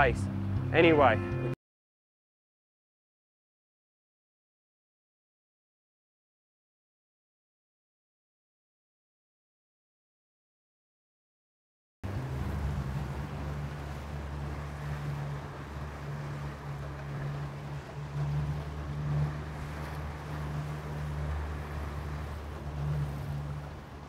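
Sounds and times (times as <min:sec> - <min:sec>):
water rushing: 0:00.0 - 0:01.2, 0:12.0 - 0:24.0
outboard motor droning: 0:00.0 - 0:01.6, 0:12.0 - 0:24.0
wind: 0:00.0 - 0:01.6, 0:12.0 - 0:24.0.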